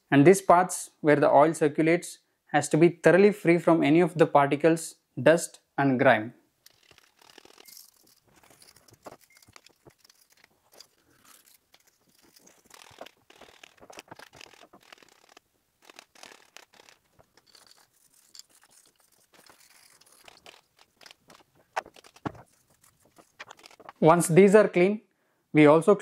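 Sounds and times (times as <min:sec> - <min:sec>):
toothbrush scrubbing metal: 0:06.7 - 0:24.0.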